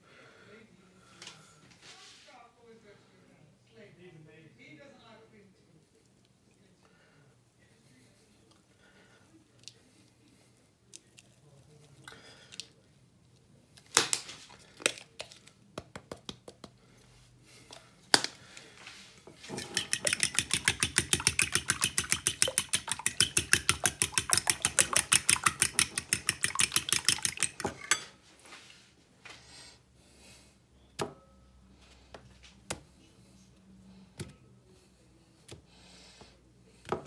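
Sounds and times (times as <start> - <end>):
fork whisking eggs in bowl: 19.3 - 28.1
fork clinking on bowl: 19.5 - 28.1.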